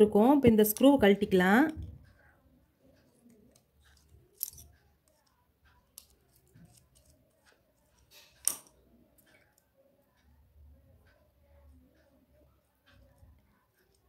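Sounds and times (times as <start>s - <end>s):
screwdriver metallic clicks: 4.3s - 4.7s.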